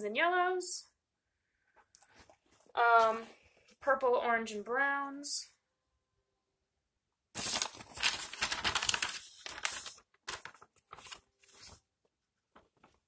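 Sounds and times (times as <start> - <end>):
paper rustling and crinkling: 7.4 - 11.9, 12.5 - 13.0.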